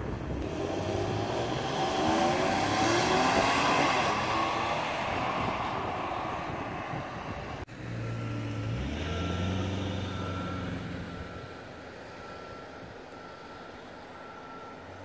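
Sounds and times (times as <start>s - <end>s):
passing vehicle: 0.0s - 15.0s
reversing alarm beeping: 7.9s - 15.0s.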